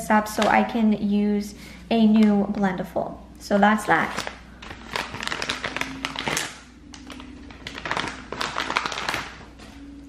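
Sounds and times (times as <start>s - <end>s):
plastic packet crinkling: 3.7s - 10.0s.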